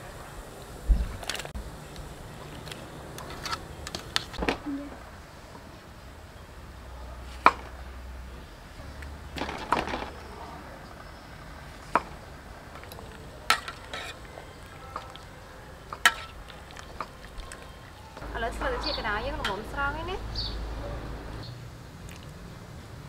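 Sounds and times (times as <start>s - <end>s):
metal ladle clinking against pot: 12.8s - 15.2s, 15.9s - 17.7s.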